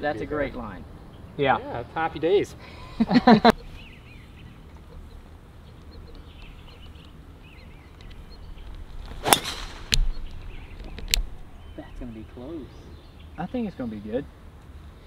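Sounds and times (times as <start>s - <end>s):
birds chirping faintly: 0.0s - 15.0s
golf driver striking ball: 9.1s - 11.5s.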